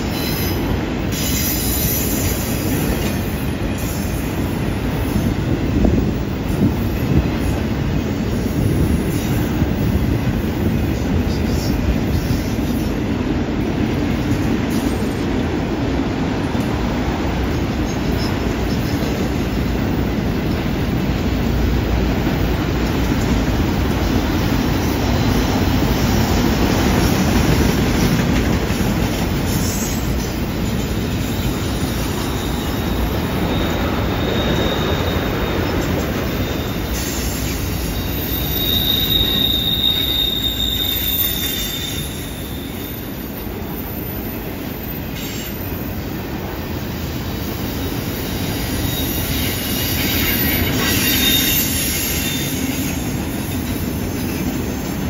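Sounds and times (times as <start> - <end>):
train wheels rumbling on rail: 0.0 - 55.0
wheel flanges squealing: 30.7 - 45.8, 48.7 - 53.1.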